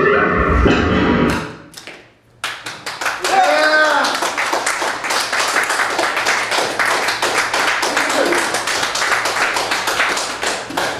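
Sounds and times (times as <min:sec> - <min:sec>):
audience applauding: 0:02.4 - 0:10.9.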